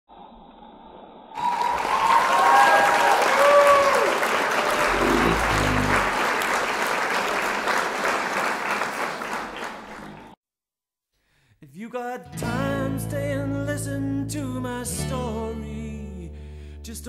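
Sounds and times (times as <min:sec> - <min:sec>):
applause and cheering: 0:01.4 - 0:10.4.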